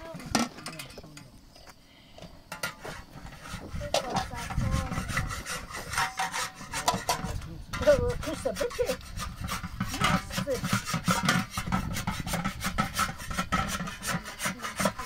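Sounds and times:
metal spatula scraping griddle: 2.5 - 15.0.

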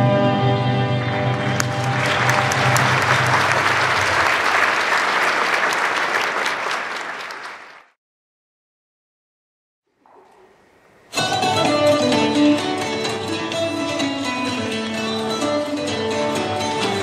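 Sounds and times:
audience applauding: 1.0 - 8.0.

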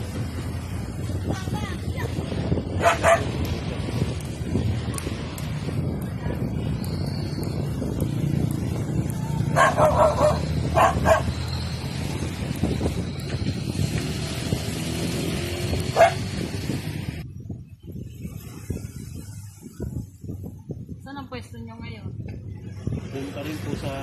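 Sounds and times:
steady low rumble: 0.0 - 14.8
dog barking: 2.8 - 3.3, 9.5 - 11.3, 16.0 - 16.2.

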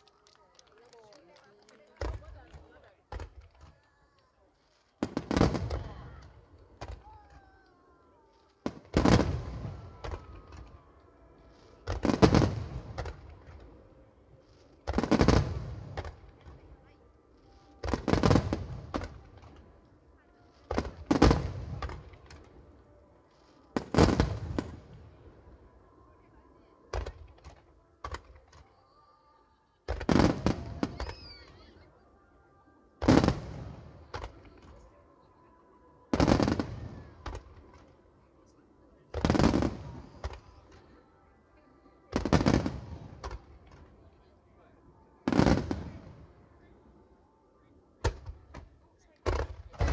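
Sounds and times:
fireworks bangs with rumbling echo: 5.0 - 7.3, 8.6 - 10.8, 11.8 - 13.7, 14.8 - 16.6, 17.8 - 19.6, 20.7 - 22.5, 23.8 - 25.0, 29.9 - 31.5, 33.0 - 34.7, 36.1 - 37.8, 39.1 - 40.8, 42.1 - 43.9, 45.2 - 46.2, 48.0 - 49.9.

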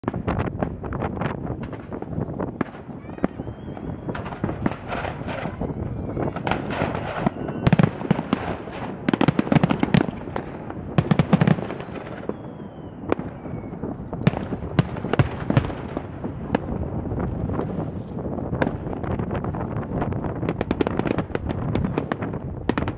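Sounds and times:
fireworks bangs and crackling: 0.0 - 22.9
faint falling whistle: 3.0 - 4.5, 5.6 - 7.9, 11.8 - 13.9.

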